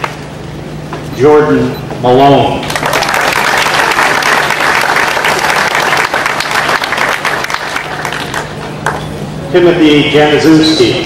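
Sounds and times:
audience applauding: 2.6s - 9.1s.

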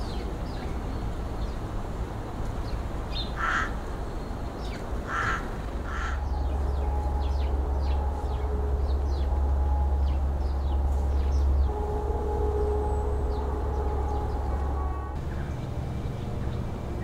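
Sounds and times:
small birds chirping: 2.6s - 11.8s
crow cawing: 3.4s - 3.8s, 5.1s - 6.3s
low steady rumble: 4.9s - 17.0s.

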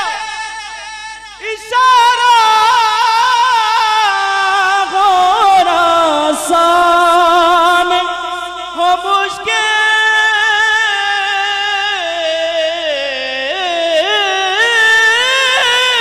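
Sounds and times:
man singing into microphone: 0.0s - 16.0s.

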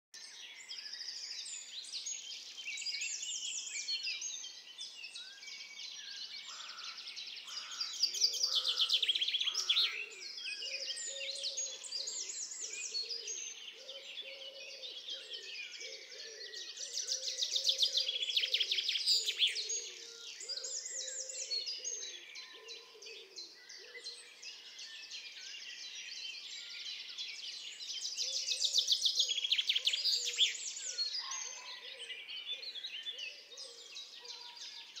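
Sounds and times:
songbirds singing and chirping: 0.2s - 35.0s.

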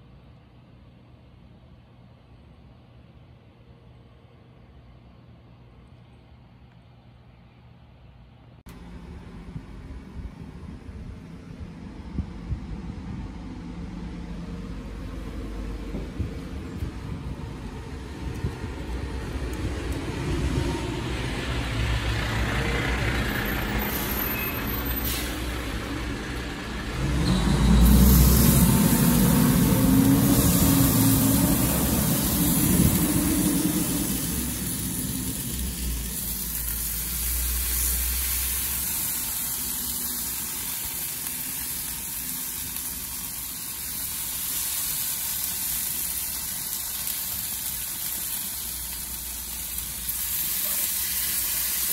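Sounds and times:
steady low rumble: 8.6s - 22.4s, 25.4s - 44.0s
meat sizzling on grill: 22.9s - 51.9s.

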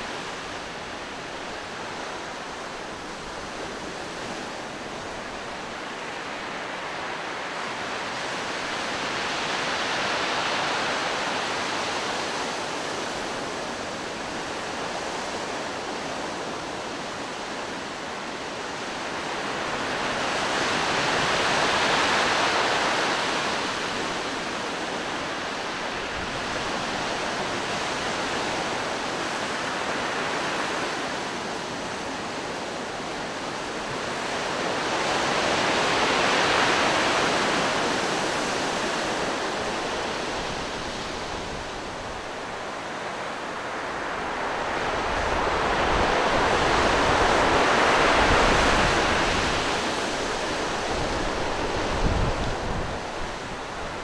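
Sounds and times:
sea surf breaking on rocks: 19.5s - 54.0s.

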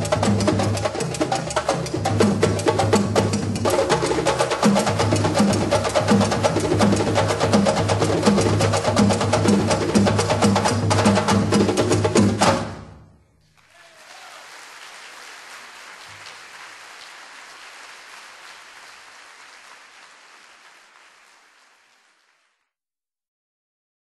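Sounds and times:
audience applause: 13.5s - 22.7s.

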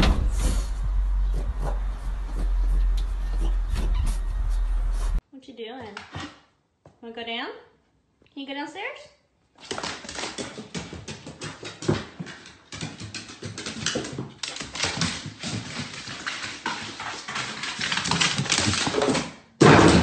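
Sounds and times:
dog claws clicking on wooden stairs: 9.6s - 19.4s.

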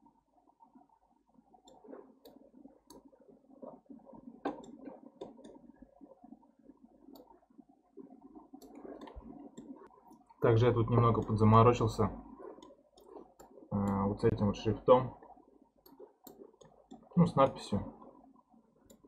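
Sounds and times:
low background noise: 0.0s - 19.0s
mouse and keyboard clicks: 4.4s - 5.6s.

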